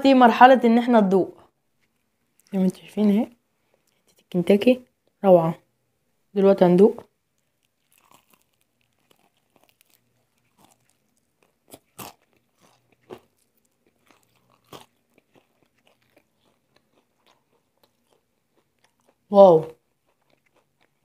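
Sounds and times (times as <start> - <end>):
faint chewing: 1.4 - 5.2, 7.0 - 21.0
crunchy bites of fried chicken: 7.1 - 21.0.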